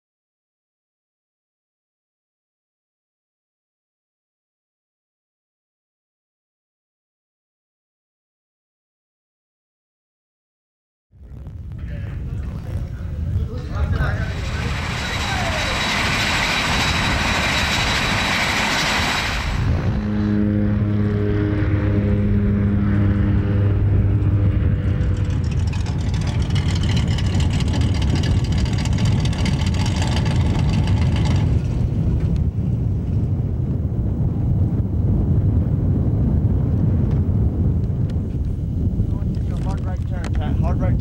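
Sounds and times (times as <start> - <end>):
propeller aircraft engine droning: 11.2 - 41.0.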